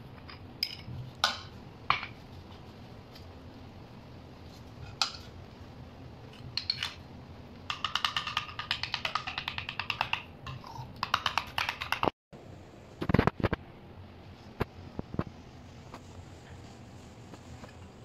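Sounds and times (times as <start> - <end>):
spoon clicking in plastic bowl: 7.7 - 12.1.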